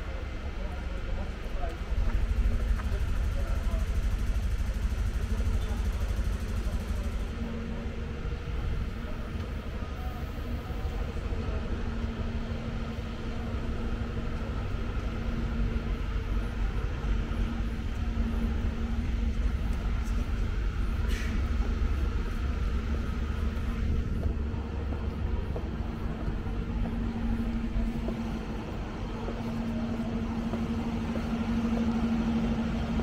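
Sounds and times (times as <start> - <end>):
traffic engine rumble: 0.0 - 33.0.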